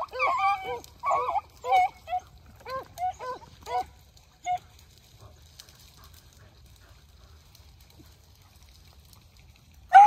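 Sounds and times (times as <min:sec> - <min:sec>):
dog baying: 0:00.0 - 0:07.0.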